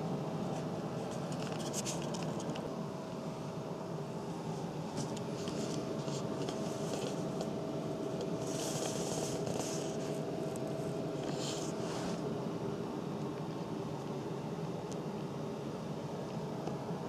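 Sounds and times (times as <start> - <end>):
steady low hum: 0.0 - 17.0
soft fabric rustling: 4.4 - 12.2.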